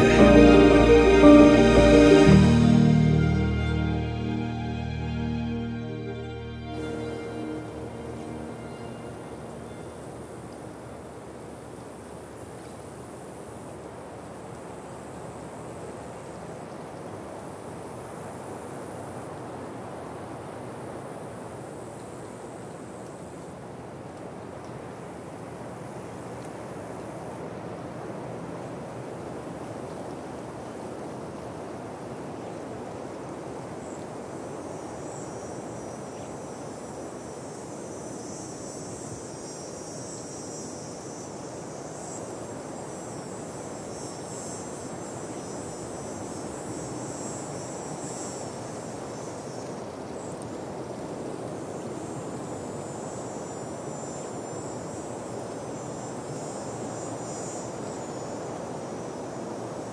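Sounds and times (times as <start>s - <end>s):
insects trilling: 33.8s - 59.9s.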